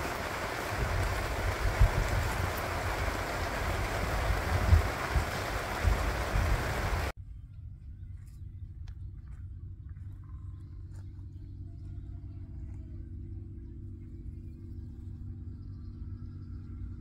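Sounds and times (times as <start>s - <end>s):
rain on a plastic tent roof: 0.0s - 7.2s.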